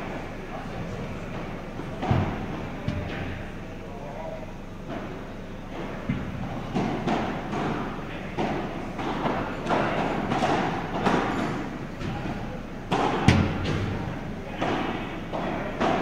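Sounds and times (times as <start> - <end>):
rackets striking ball: 5.8 - 16.0.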